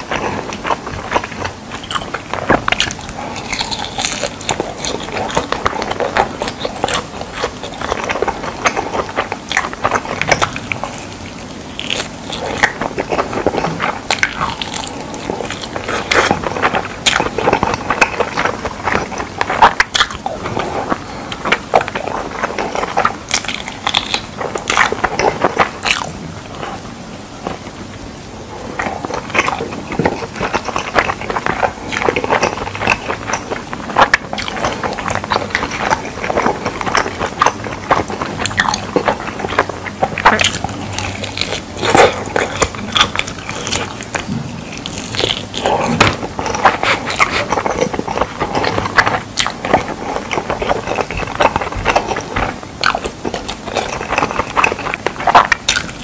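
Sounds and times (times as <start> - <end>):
person crunching and chewing: 0.0 - 56.0.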